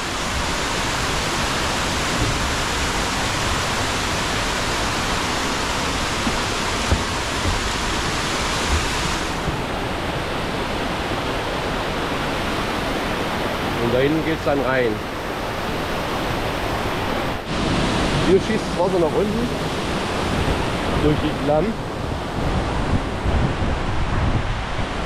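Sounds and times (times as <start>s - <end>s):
waterfall pouring: 0.0s - 9.5s
low bumps: 5.9s - 9.8s.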